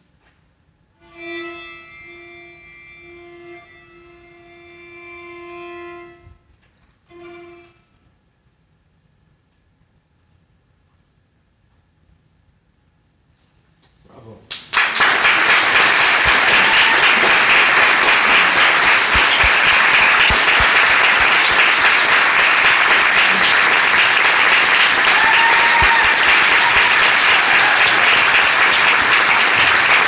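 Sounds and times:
audience applauding: 0:14.5 - 0:30.0.

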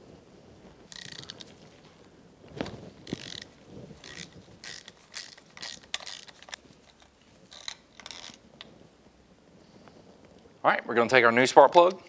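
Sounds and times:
socket ratchet clicking: 0:03.1 - 0:06.6.

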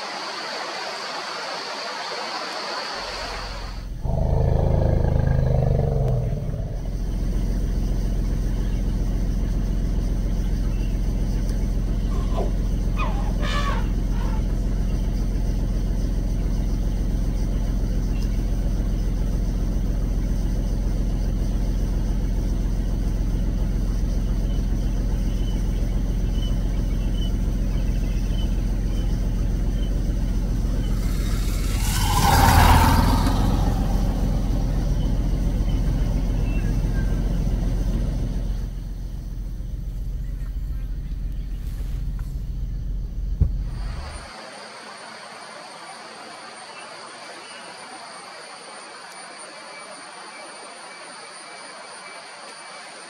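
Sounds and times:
vehicle engine idling: 0:03.1 - 0:44.3
loud rushing sound: 0:30.7 - 0:35.7.

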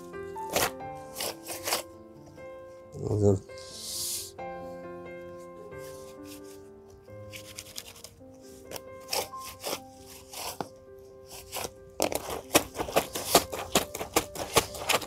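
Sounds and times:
soft background music: 0:00.0 - 0:15.0
brush scraping wet garment: 0:00.4 - 0:01.9, 0:08.8 - 0:15.0.

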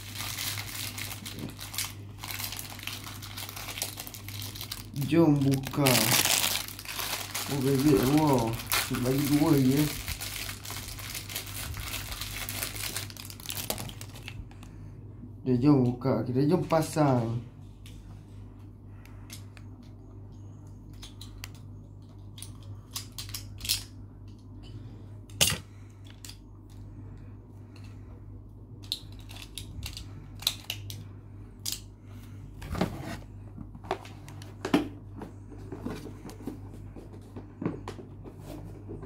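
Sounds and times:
low hum: 0:17.3 - 0:37.5.

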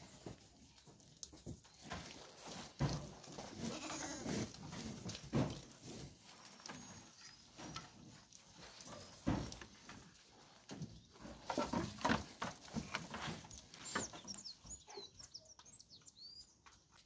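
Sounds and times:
goat bleating: 0:03.5 - 0:04.4.

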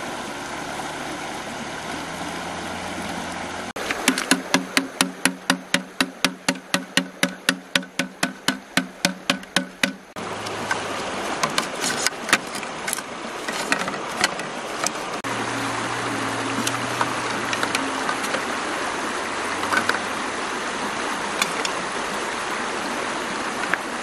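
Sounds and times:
low steady hum: 0:00.0 - 0:23.8
shallow river rushing: 0:00.0 - 0:24.0
bamboo knocking with hollow ring: 0:03.8 - 0:10.8.

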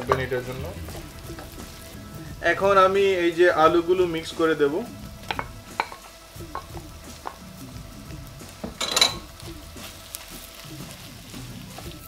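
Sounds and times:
potatoes sizzling in hot oil: 0:00.0 - 0:12.0.

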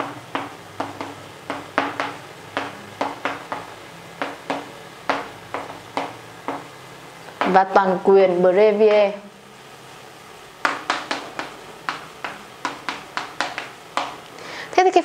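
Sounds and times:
chalk tapping on chalkboard: 0:00.0 - 0:06.7, 0:10.6 - 0:14.2.

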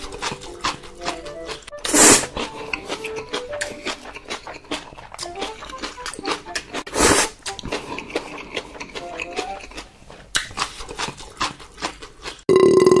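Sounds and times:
wet chewing and mouth smacking: 0:00.0 - 0:12.5
loud burp: 0:12.5 - 0:13.0.

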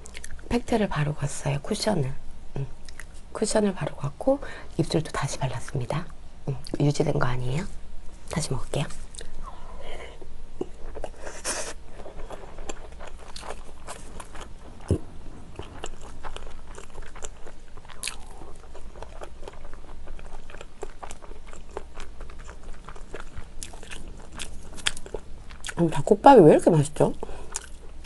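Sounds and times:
person chewing crunchy food: 0:10.6 - 0:25.8, 0:27.4 - 0:28.0.

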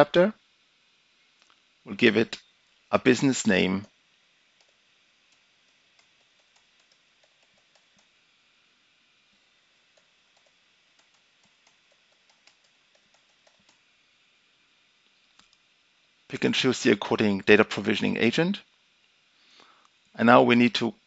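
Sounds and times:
typing on computer keyboard: 0:06.0 - 0:08.1, 0:10.4 - 0:13.8.

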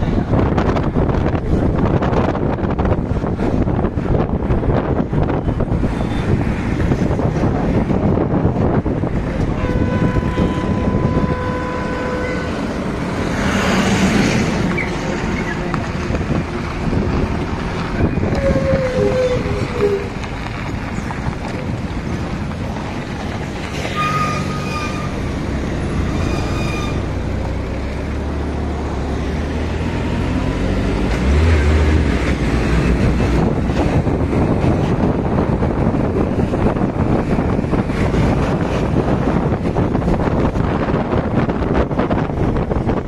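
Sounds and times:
heavy low rumble: 0:00.0 - 0:23.9, 0:24.6 - 0:43.0
traffic hum of engines and tyres: 0:00.0 - 0:43.0
wind on microphone: 0:00.0 - 0:43.0
car horn toots: 0:09.5 - 0:12.6.

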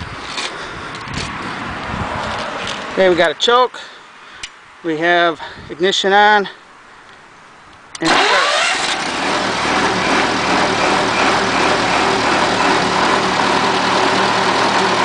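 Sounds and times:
generator engine starting and running: 0:08.0 - 0:15.0.

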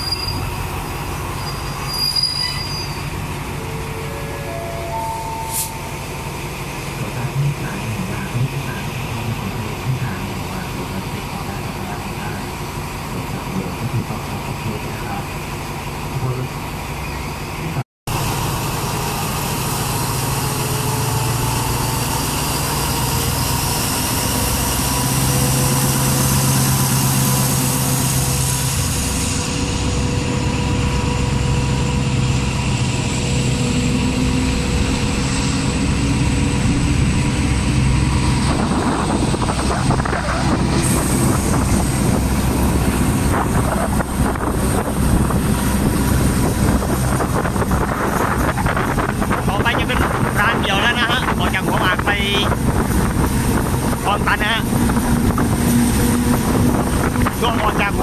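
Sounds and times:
rising whine: 0:00.0 - 0:07.1
diesel train engine running: 0:00.0 - 0:58.0
rushing wheel noise: 0:00.0 - 0:58.0
wind through open window: 0:34.3 - 0:58.0.

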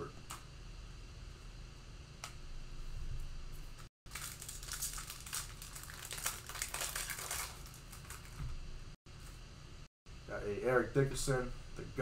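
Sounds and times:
plastic wrapper tearing and crinkling: 0:04.1 - 0:08.4.

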